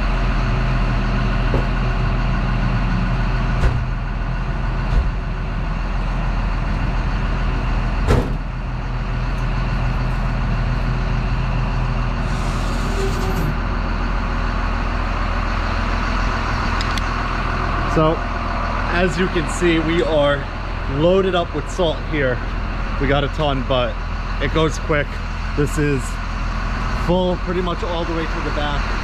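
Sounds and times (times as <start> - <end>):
diesel engine idling: 0.0 - 29.0
overhead door clanking: 1.3 - 2.2, 3.5 - 4.1, 8.0 - 8.6.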